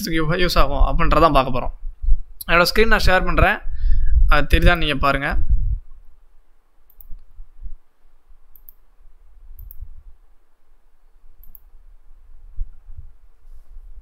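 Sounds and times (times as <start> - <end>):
dull low thumps: 5.4 - 6.1
computer mouse clicking: 6.9 - 7.3, 8.5 - 8.8, 9.6 - 9.8, 11.4 - 11.7.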